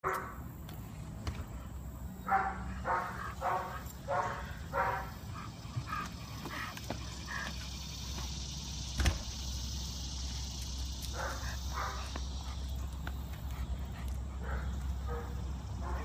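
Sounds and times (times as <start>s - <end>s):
low outdoor rumble: 0.1s - 16.0s
dog barking: 2.3s - 5.2s, 14.4s - 16.0s.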